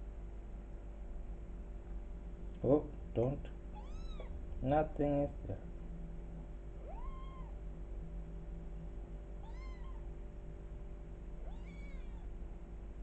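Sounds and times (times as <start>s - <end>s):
kitten meowing: 3.7s - 4.3s, 6.8s - 7.6s, 9.4s - 10.1s, 11.4s - 12.3s.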